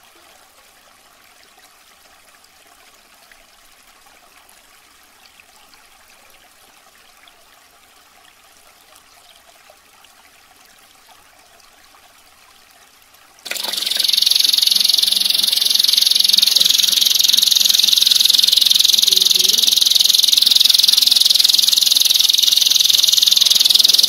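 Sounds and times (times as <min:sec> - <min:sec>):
faint trickling water: 0:00.0 - 0:24.0
canary singing rapid trill: 0:13.5 - 0:24.0.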